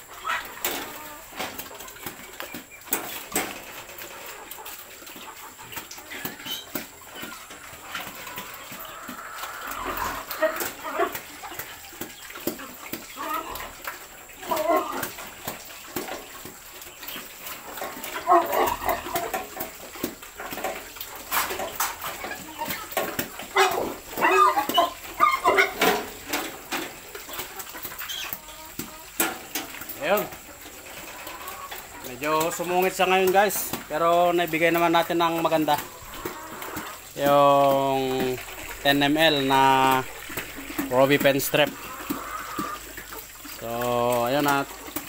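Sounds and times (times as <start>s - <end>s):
clicks and knocks from metal crate: 0.2s - 8.9s, 14.5s - 37.1s
pig grunting and squealing: 3.2s - 16.0s, 17.3s - 29.1s, 29.8s - 44.9s.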